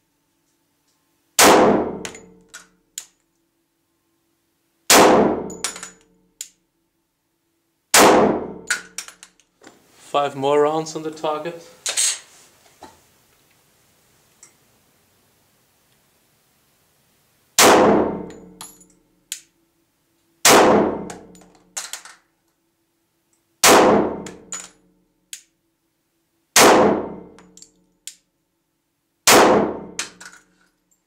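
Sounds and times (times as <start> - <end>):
pistol shots: 1.4 - 2.2, 4.9 - 5.8, 7.9 - 8.9, 17.6 - 18.4, 20.4 - 21.2, 23.6 - 24.5, 26.6 - 27.2, 29.3 - 30.2.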